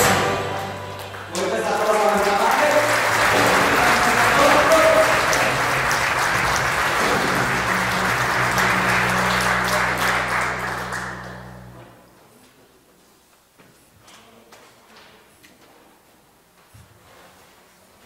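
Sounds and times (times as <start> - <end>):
congregation applauding: 0.0 - 11.8.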